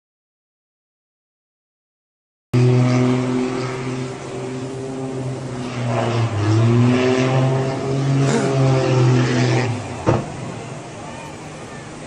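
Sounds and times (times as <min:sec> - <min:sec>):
small airplane engine droning: 0:02.6 - 0:12.0.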